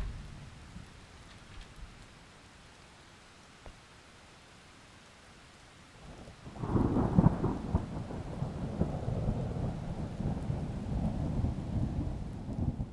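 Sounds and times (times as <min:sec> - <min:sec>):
thunder rumbling and cracking: 0:00.0 - 0:01.0, 0:06.4 - 0:12.9
faint rain: 0:00.0 - 0:12.9.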